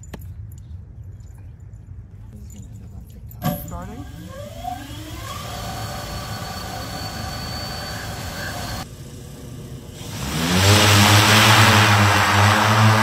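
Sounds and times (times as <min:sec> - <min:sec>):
deep rotor drone: 0:03.5 - 0:13.0
electric aircraft propellers whirring: 0:03.5 - 0:13.0
rushing air: 0:06.0 - 0:13.0.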